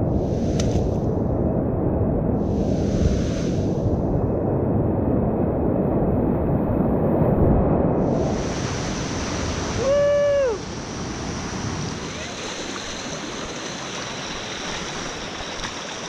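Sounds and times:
wind noise on microphone: 0.0 - 16.0
whitewater rapids rushing: 8.4 - 16.0
person shouting: 9.8 - 10.6.

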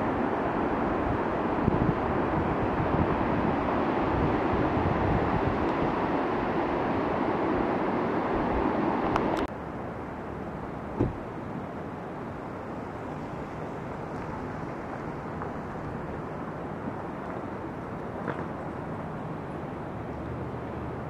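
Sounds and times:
brief thump: 11.0 - 11.2.

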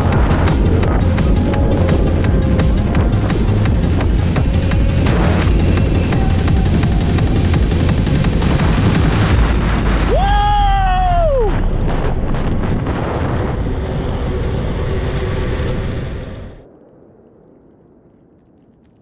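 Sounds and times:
inline skate wheels on asphalt: 0.0 - 9.3.

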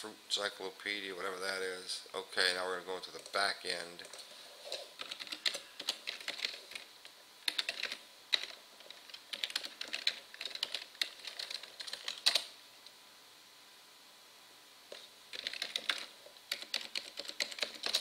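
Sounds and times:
keyboard typing: 4.0 - 12.5, 14.9 - 18.0.

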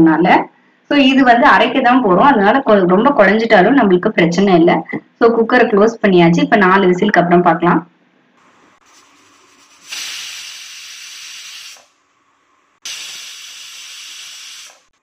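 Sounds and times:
faint steam hiss: 8.4 - 14.3
pressure cooker whistling: 9.9 - 12.0, 12.8 - 14.9.

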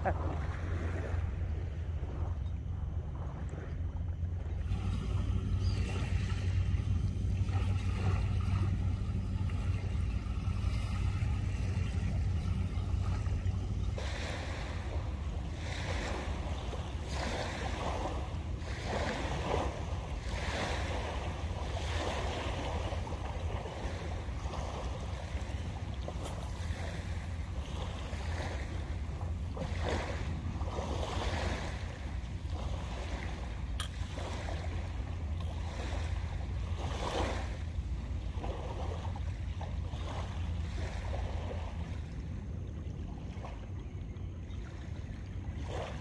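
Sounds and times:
wind rumbling on microphone: 0.0 - 46.0
small waves washing onto sand: 4.4 - 42.4.

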